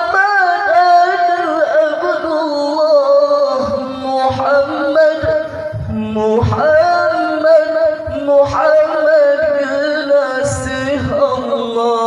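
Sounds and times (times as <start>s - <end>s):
man singing through microphone: 0.0s - 12.0s
low pulsing beat: 3.6s - 9.7s.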